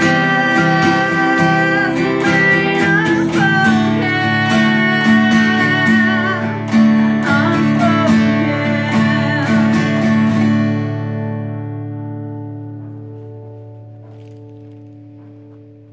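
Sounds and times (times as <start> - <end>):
woman singing: 0.0 - 11.0
acoustic guitar strumming: 0.0 - 15.9.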